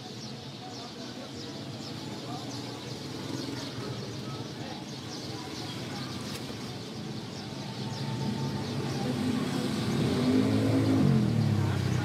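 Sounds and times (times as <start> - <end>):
vehicle engine passing: 8.2 - 12.0.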